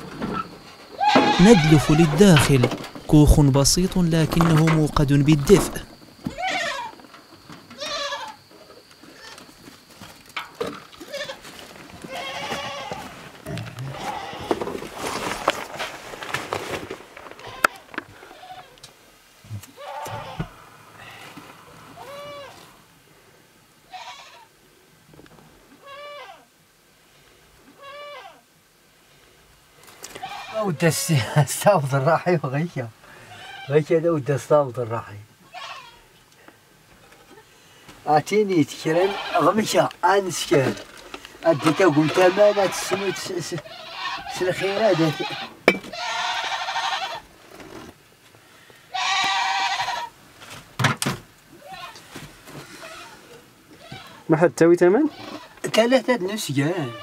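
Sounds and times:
flock animals bleating: 1.0s - 7.0s, 7.8s - 8.4s, 11.0s - 14.6s, 17.4s - 18.8s, 19.6s - 22.8s, 23.8s - 24.6s, 25.8s - 26.5s, 27.7s - 28.4s, 30.1s - 31.1s, 33.0s - 33.8s, 35.4s - 36.1s, 38.7s - 39.9s, 41.1s - 47.3s, 48.8s - 50.2s, 51.5s - 52.0s, 52.6s - 54.3s, 55.0s - 55.6s, 56.5s - 57.0s.

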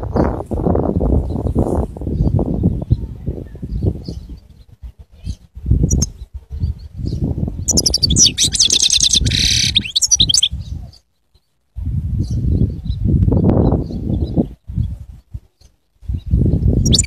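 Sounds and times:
goldfinch singing: 3.8s - 10.8s, 15.6s - 17.0s.

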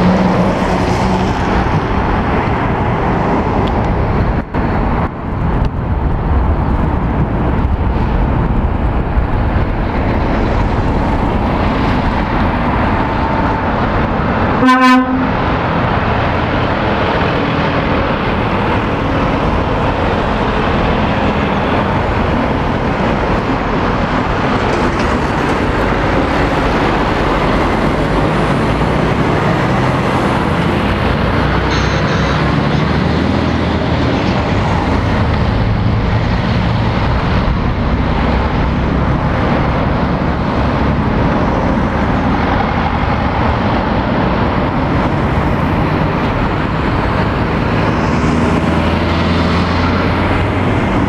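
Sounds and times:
heavy lorries passing: 0.0s - 51.0s
vehicle horn toot: 14.6s - 15.3s, 31.7s - 32.6s.

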